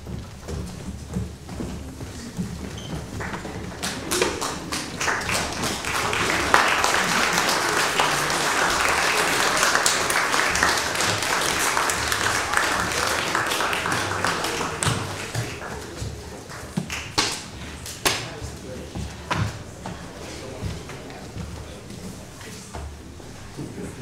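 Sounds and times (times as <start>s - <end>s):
congregation applauding: 2.8s - 18.4s.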